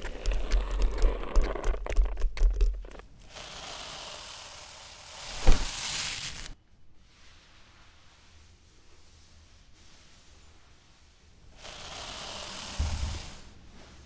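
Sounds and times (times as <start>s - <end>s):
crackling rustling noise: 0.0s - 3.2s, 5.2s - 9.2s
steady hiss: 3.2s - 14.0s.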